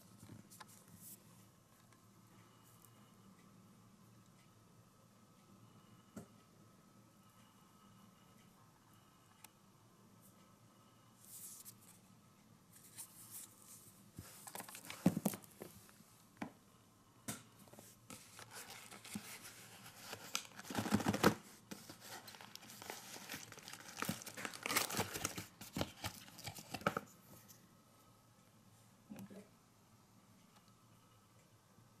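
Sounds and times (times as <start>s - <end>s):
cardboard and plastic crinkling: 14.2s - 15.8s, 18.1s - 27.1s.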